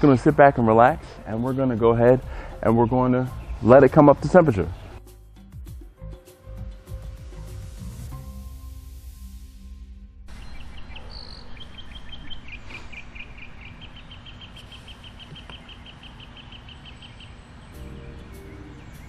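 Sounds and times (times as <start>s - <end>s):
songbird chirping: 0.0s - 6.5s, 10.3s - 19.0s.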